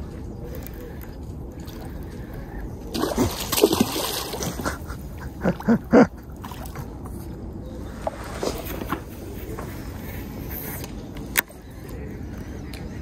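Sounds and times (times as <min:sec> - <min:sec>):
fish splashing in water: 0:02.9 - 0:04.9.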